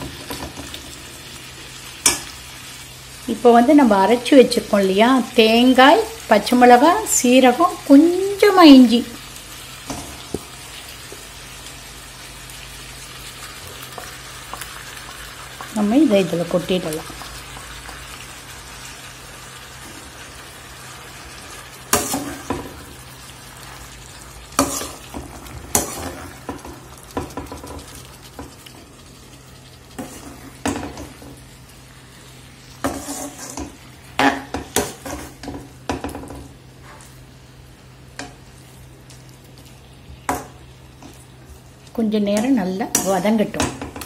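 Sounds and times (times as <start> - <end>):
vegetables sizzling in pan: 0.0 - 44.0
metal spatula scraping pan: 24.6 - 26.6, 32.8 - 35.6.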